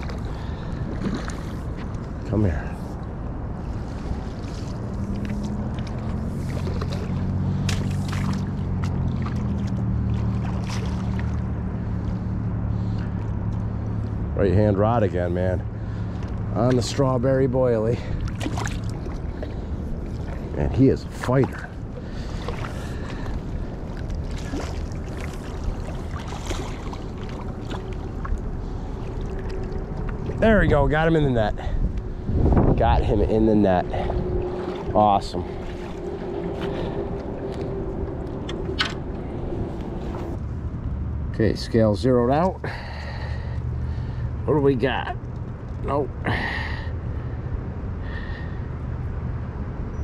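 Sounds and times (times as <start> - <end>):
fish splashing and thrashing in water: 0.0 - 2.2, 3.8 - 13.8, 18.0 - 30.5, 33.7 - 40.2
wind rumble on microphone: 0.0 - 41.9
low motor hum: 0.0 - 50.0.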